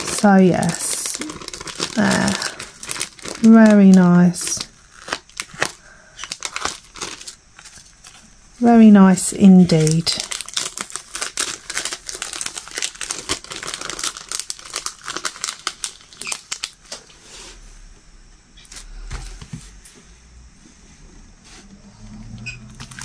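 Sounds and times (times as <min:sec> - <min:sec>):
plastic film crinkling: 0:00.0 - 0:17.0, 0:22.8 - 0:23.0.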